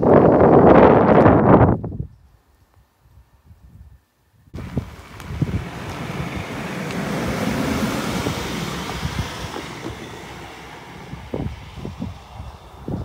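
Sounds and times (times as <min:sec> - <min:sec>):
wind on microphone: 0:00.0 - 0:13.0
vehicle driving over crossing: 0:04.6 - 0:13.0.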